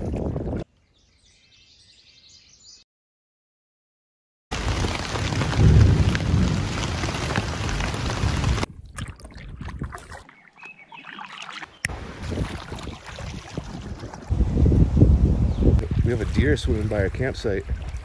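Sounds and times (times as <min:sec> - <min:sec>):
wind and water rumble: 0:00.0 - 0:00.7, 0:04.5 - 0:18.0.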